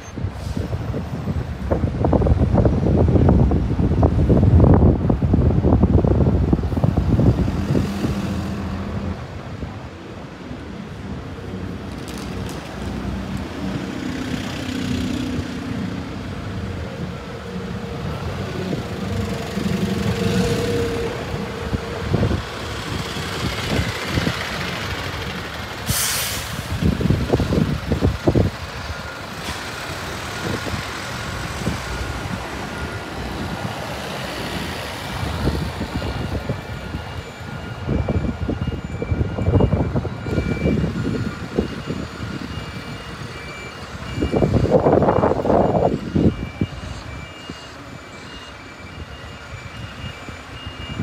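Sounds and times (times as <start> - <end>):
bus engines passing: 0.0 - 51.0
air-brake hiss: 25.8 - 26.8.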